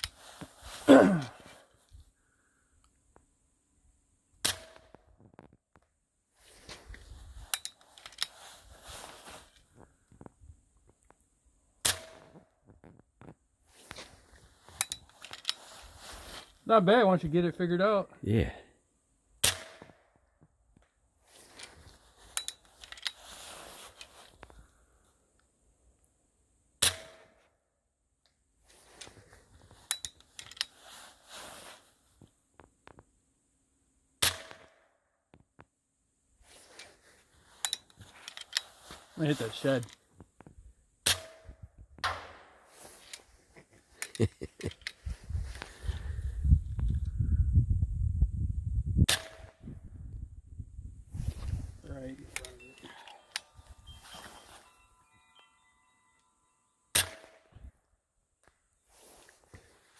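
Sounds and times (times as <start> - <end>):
rustling handling noise: 0.0 - 2.0, 5.3 - 11.2, 12.6 - 16.9, 21.2 - 24.8, 28.6 - 33.1, 36.4 - 40.6, 42.6 - 46.1, 51.1 - 56.5, 58.8 - 59.9.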